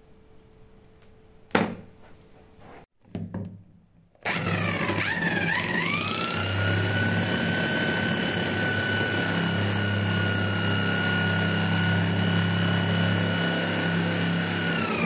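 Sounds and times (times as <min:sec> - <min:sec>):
electric drill whine: 0:04.2 - 0:15.0.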